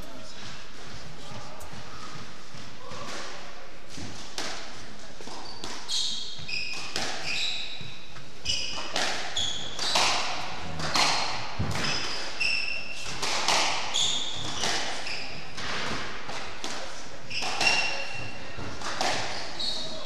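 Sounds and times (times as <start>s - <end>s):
squash ball hitting rackets: 1.7s - 20.0s
shoes squeaking on wooden floor: 5.3s - 13.1s, 13.8s - 15.6s.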